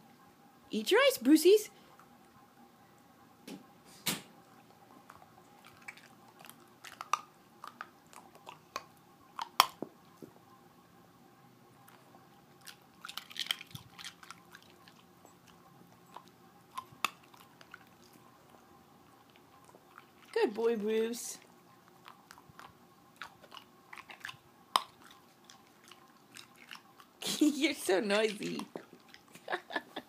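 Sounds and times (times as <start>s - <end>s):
dog crunching ice cubes: 5.6s - 9.8s, 12.6s - 15.1s, 21.9s - 29.3s.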